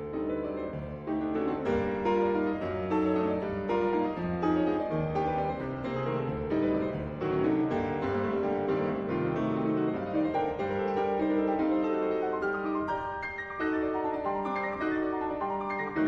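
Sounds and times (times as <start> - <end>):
solo classical piano: 0.0 - 16.0.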